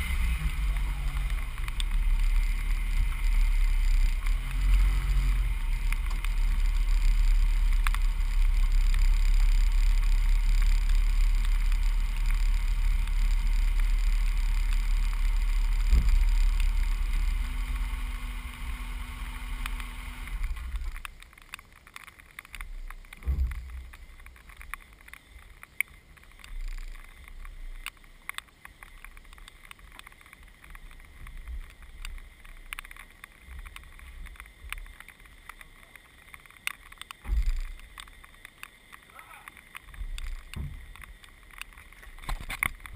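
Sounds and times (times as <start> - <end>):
truck engine rumbling: 0.0 - 42.9
faint clicks: 0.4 - 17.9, 19.4 - 42.9.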